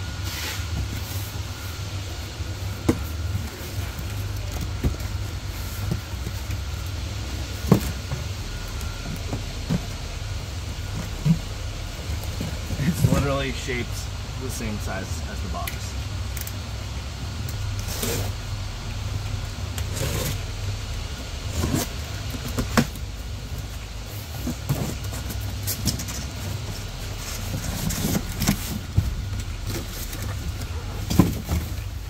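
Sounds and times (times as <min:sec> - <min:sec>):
steady low hum: 0:00.0 - 0:32.0
cardboard thumps: 0:27.4 - 0:32.0.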